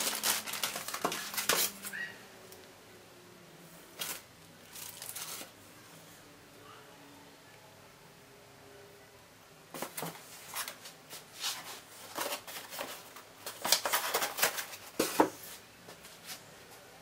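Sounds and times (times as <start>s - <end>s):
packing materials rustling: 0.0s - 2.0s, 3.9s - 5.6s, 9.8s - 15.6s.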